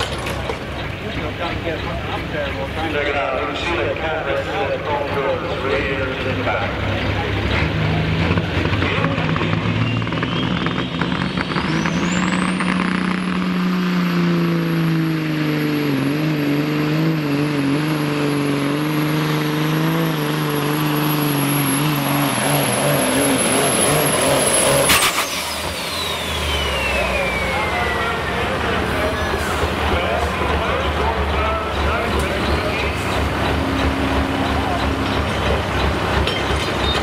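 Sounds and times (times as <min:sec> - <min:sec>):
diesel truck engine at full power: 0:00.0 - 0:37.0
turbocharger whine: 0:00.0 - 0:37.0
engine cut-off burst: 0:07.2 - 0:36.3.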